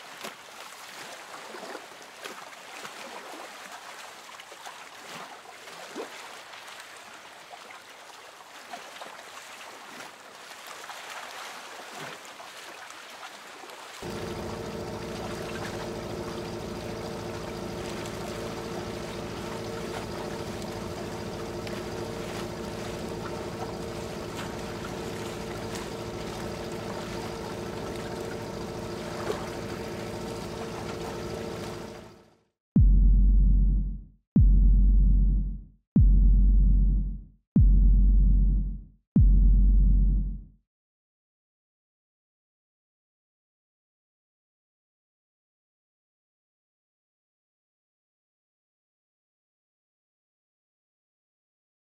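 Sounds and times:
rushing water: 0:00.0 - 0:32.1
small waves washing on shore: 0:00.0 - 0:32.2
boat engine running: 0:14.0 - 0:33.4.

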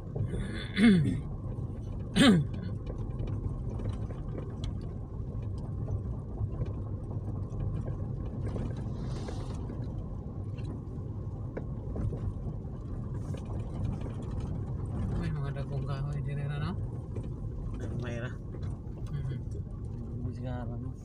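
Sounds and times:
car engine and tyres rumble: 0:00.0 - 0:21.0.

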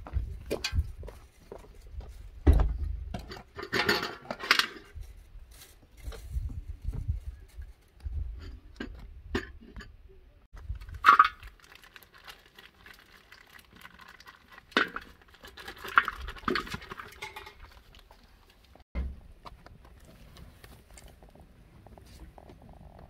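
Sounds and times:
plastic packet crinkling: 0:10.6 - 0:18.1
metal pot knocking and clanking: 0:16.6 - 0:17.7.

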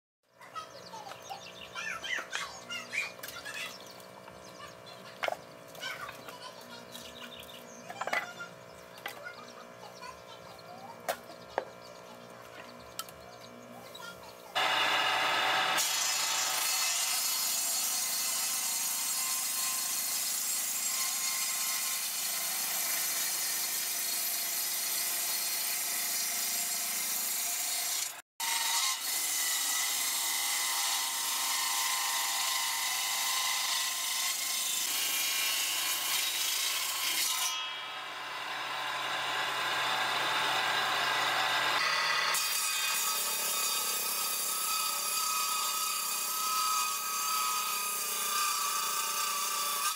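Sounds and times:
table saw cutting wood: 0:14.0 - 0:49.9.

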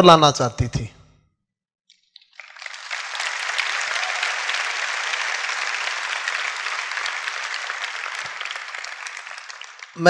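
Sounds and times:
audience applause: 0:02.2 - 0:10.0.

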